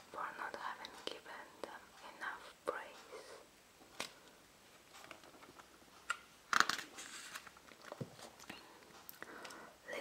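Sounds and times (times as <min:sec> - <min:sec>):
book pages turning: 0:04.9 - 0:08.6.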